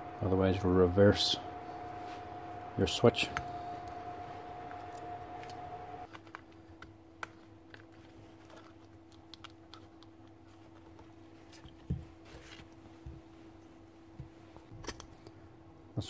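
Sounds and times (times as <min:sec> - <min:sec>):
faint steady hum: 0:00.0 - 0:16.0
plastic parts clicking and tapping: 0:06.1 - 0:11.0.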